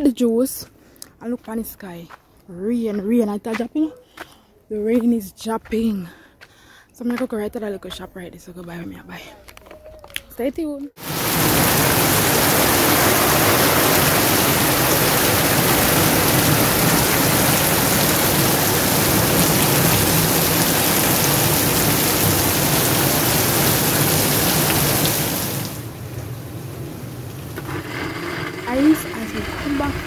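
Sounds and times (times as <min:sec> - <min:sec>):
heavy rain on leaves: 0:11.0 - 0:27.8.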